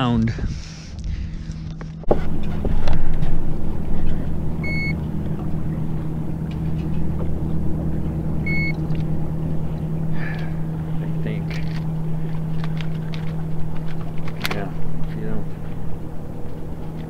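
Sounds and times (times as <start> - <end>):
low hum of boat motor: 0.0 - 17.0
short electronic beeps: 4.6 - 5.0, 8.4 - 8.8.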